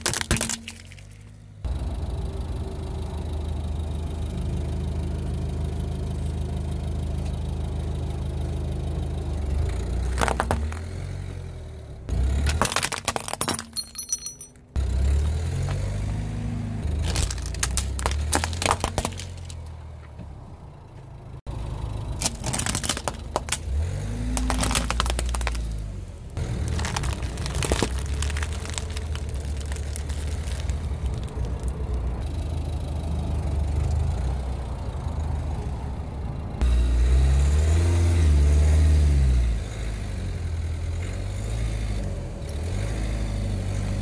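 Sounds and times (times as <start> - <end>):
tyre crushing plastic objects: 0.0 - 1.3, 10.1 - 10.8, 12.4 - 14.5, 17.0 - 19.7, 22.2 - 31.8
car engine running: 0.0 - 37.2.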